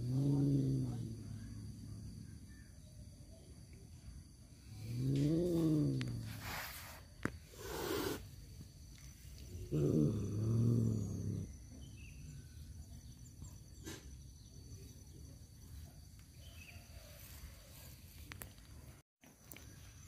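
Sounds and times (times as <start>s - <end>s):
cat growling yowl: 0.0s - 1.3s, 9.7s - 11.5s
cat hissing: 5.5s - 8.3s.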